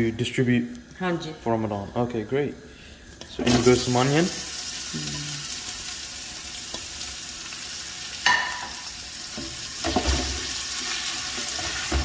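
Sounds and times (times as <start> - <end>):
onions sizzling in oil: 3.4 - 12.0.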